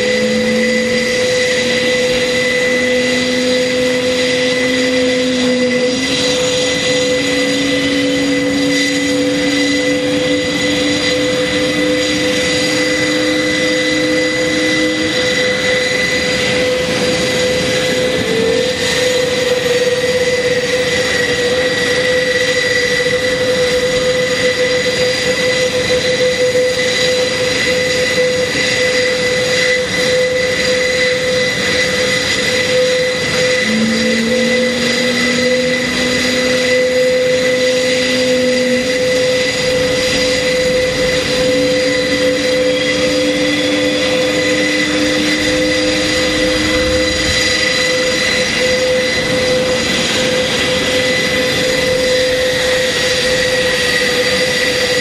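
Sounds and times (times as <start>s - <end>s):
turboprop engines whining: 0.0s - 55.0s
engine starting and spooling up: 31.4s - 54.7s.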